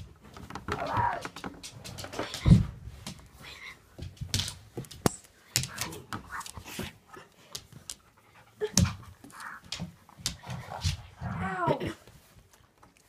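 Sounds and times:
dog panting: 6.3s - 11.1s.

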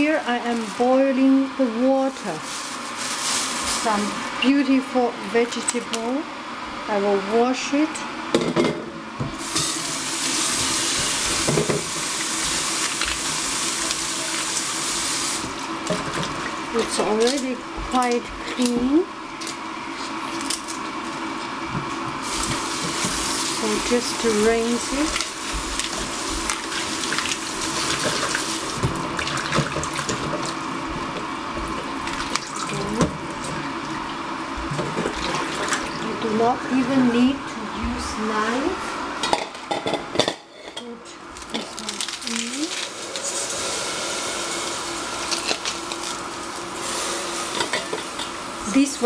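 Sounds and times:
water splashing over leaves: 23.5s - 30.5s, 32.0s - 33.4s, 41.6s - 43.4s
water splashing in metal bowl: 31.8s - 33.6s.

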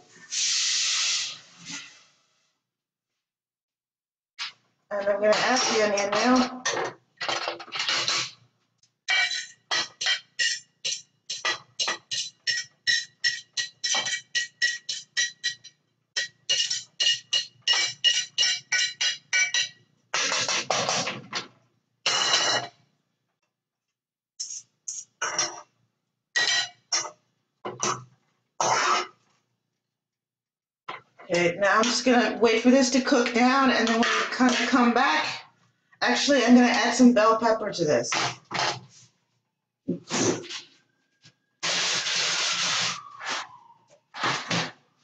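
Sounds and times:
utensil clinking on plate and pan: 9.1s - 19.8s.

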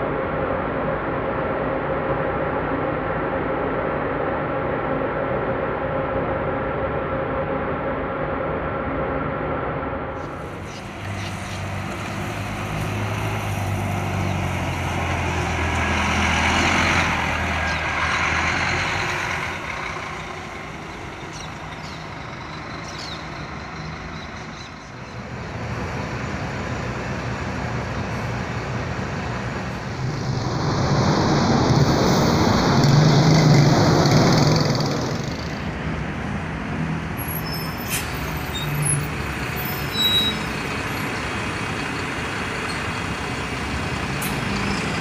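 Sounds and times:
bus engine drone: 0.0s - 45.0s
street traffic noise: 0.0s - 45.0s
short high squeaks: 39.8s - 40.5s.

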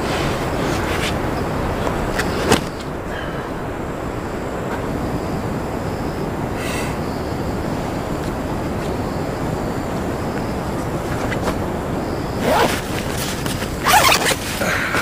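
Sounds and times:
wind across microphone: 0.0s - 15.0s
nylon bag rustling: 12.4s - 15.0s.

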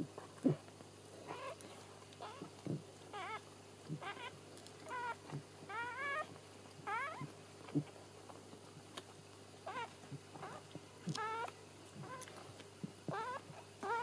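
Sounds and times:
puppy squealing: 3.1s - 3.4s, 4.9s - 6.3s, 6.9s - 7.3s, 9.7s - 10.6s, 11.2s - 12.3s, 13.1s - 14.0s.

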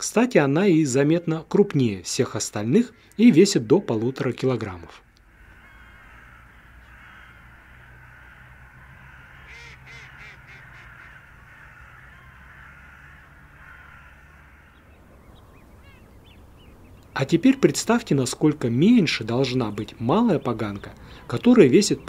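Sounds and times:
outdoor background hiss: 0.0s - 22.0s
bird harsh calls: 3.9s - 17.6s, 18.9s - 22.0s.

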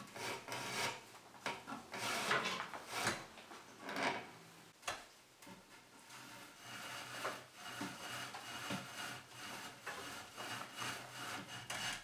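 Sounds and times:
rope rubbing against wood: 6.0s - 12.0s.

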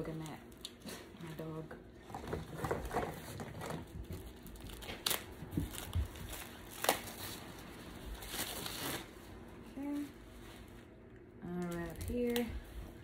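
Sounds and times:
packaging crinkling and tearing: 2.8s - 9.2s.

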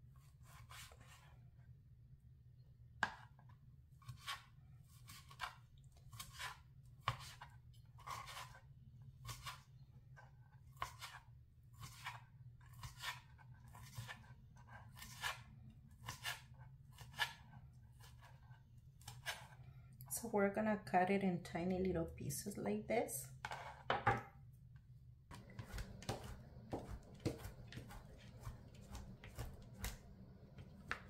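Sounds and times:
knife cutting onto plastic board: 25.3s - 31.0s.

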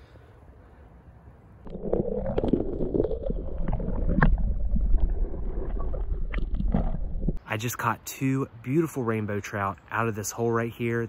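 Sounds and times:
muffled underwater water rumble: 1.7s - 7.4s.

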